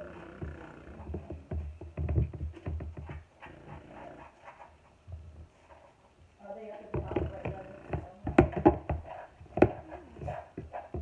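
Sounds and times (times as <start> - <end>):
microphone thumps and rustling: 0.4 - 5.7.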